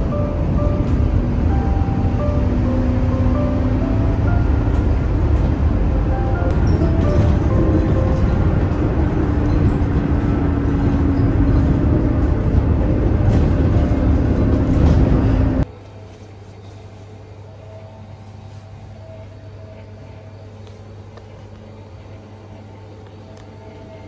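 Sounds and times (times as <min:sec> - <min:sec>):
bus engine running: 0:00.0 - 0:15.7
road rumble: 0:00.0 - 0:15.7.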